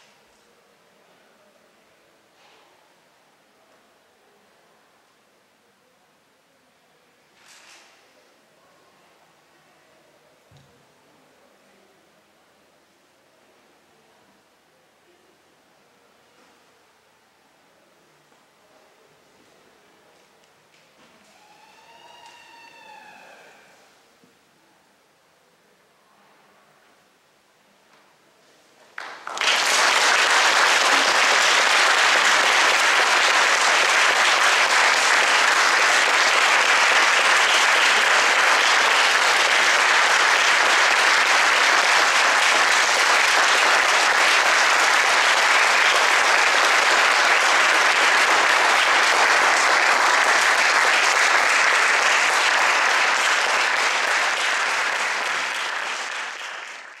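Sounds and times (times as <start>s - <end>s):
audience applauding: 29.0s - 57.0s.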